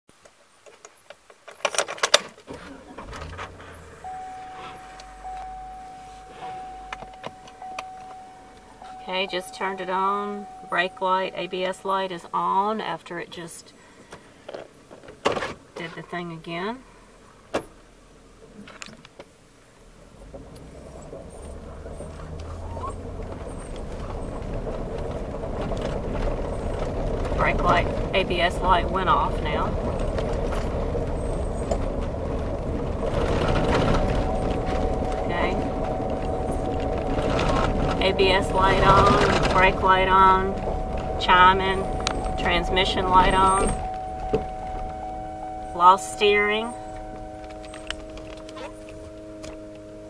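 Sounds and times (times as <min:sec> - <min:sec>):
car engine starting and idling: 0:00.0 - 0:50.0
tyres on gravel: 0:00.8 - 0:13.1, 0:20.2 - 0:50.0
keys jangling in ignition: 0:03.0 - 0:11.8
steady high tone: 0:03.7 - 0:13.6, 0:31.6 - 0:50.0.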